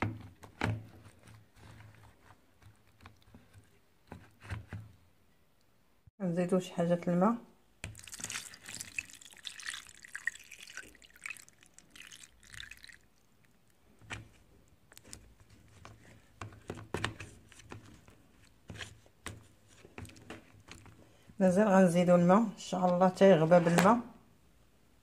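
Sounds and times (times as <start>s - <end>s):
water pouring and splashing into tub: 7.8s - 13.7s.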